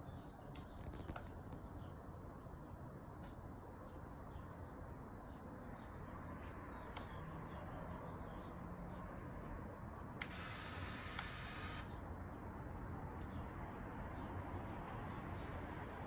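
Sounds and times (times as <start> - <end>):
toy boat motor whirring: 10.2 - 11.9.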